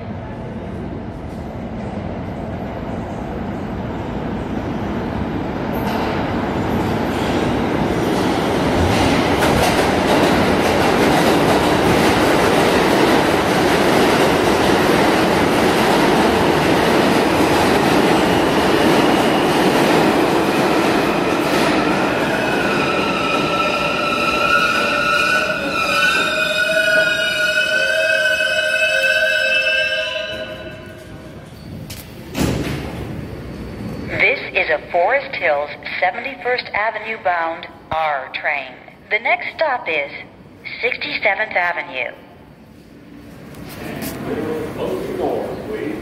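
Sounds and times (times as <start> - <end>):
subway train wheel and rail noise: 0.0 - 46.0.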